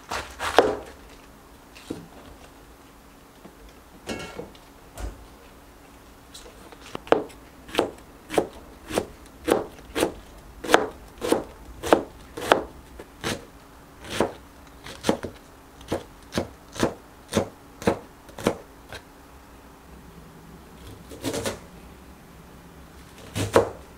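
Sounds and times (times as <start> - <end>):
knife chopping cabbage on board: 0.0 - 1.0, 7.0 - 19.0, 21.1 - 21.6, 23.2 - 23.8.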